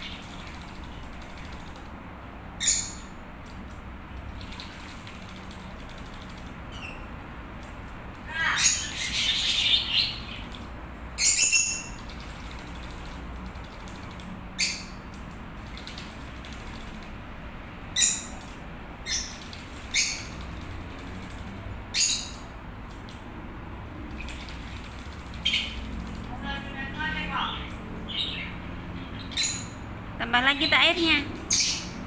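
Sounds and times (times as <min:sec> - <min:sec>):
bird splashing in water: 0:04.3 - 0:06.6, 0:24.1 - 0:26.3.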